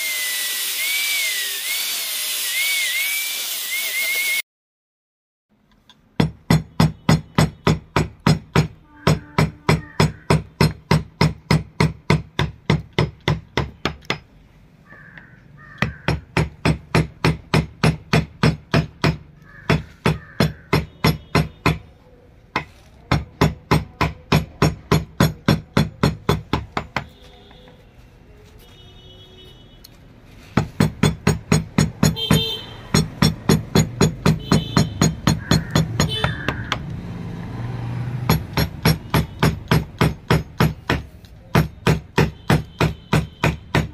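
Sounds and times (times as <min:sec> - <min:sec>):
hammer tapping chisel into wood: 0:05.9 - 0:14.3, 0:14.9 - 0:21.9, 0:22.5 - 0:27.2, 0:30.6 - 0:36.9, 0:38.3 - 0:43.9.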